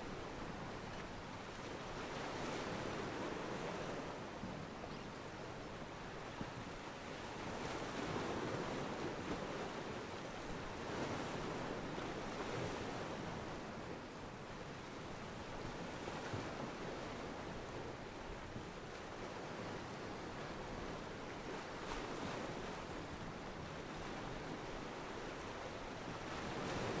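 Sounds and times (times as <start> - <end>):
ocean waves washing against pier: 18.5 - 27.0.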